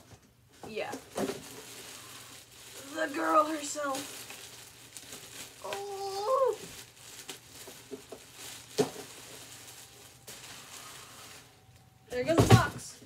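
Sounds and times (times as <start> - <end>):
plastic bag rustling: 0.5 - 12.7
person squealing excitedly: 5.6 - 6.6.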